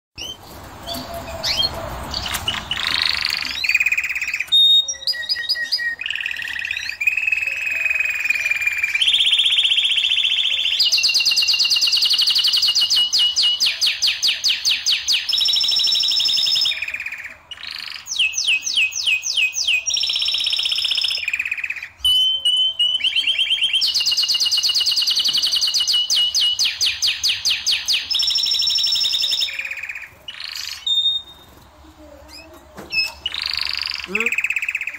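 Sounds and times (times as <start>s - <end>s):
canary singing trills: 0.2s - 34.9s.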